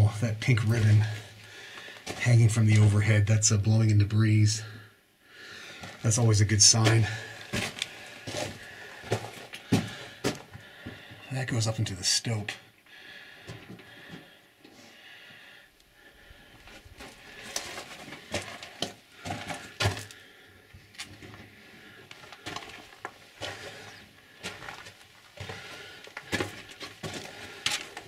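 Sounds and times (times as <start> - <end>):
footsteps on gravel: 6.8 - 11.0, 16.7 - 20.2, 22.2 - 28.0.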